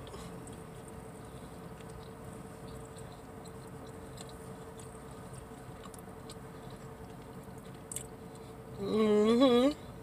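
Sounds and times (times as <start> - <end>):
chewing and mouth clicks: 0.0 - 8.6
low car interior hum: 0.0 - 10.0.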